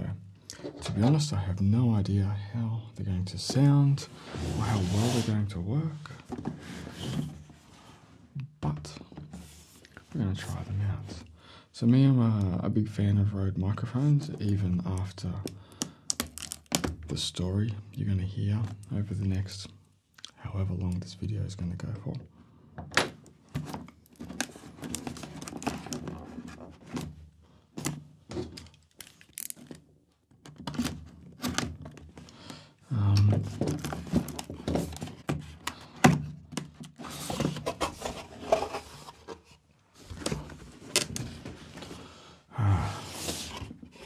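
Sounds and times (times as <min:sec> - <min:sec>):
cardboard rustling and scraping: 0:03.5 - 0:05.5, 0:06.2 - 0:08.0, 0:09.3 - 0:09.8, 0:23.5 - 0:27.2, 0:33.3 - 0:36.0, 0:36.6 - 0:42.0, 0:42.9 - 0:44.0.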